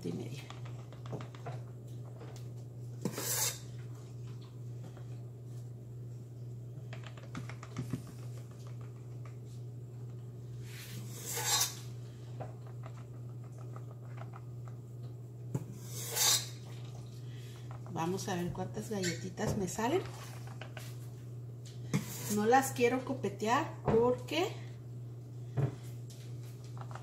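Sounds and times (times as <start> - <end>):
steady low hum: 0.0 - 27.0
spoon scraping metal bowl: 3.1 - 3.7, 11.1 - 11.8, 15.8 - 16.6.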